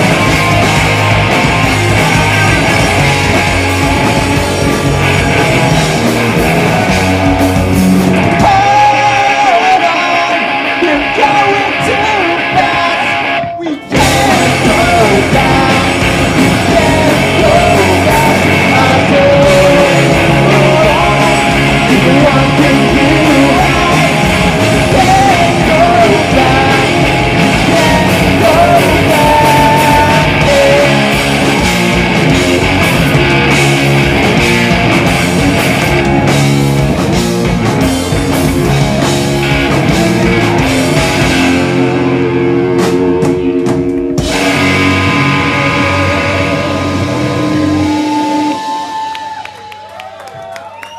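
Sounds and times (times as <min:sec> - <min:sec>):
punk rock band playing live: 0:00.0 - 0:49.4.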